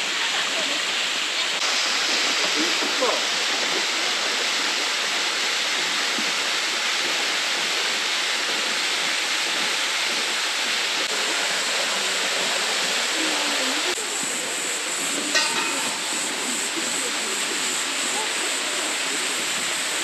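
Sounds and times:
flowing water: 0.0 - 20.0.

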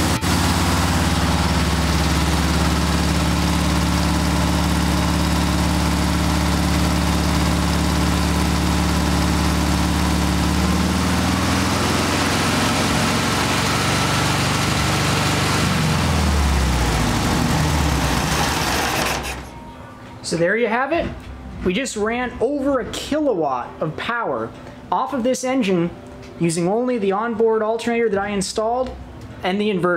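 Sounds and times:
engine running at high idle: 0.0 - 19.6.

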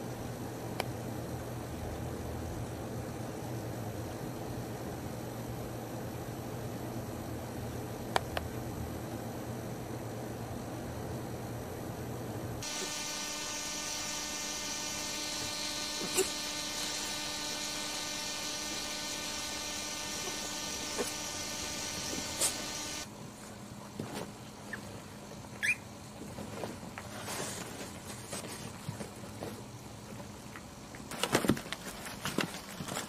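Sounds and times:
mechanical buzz: 12.6 - 23.1
rustling: 31.1 - 33.0.

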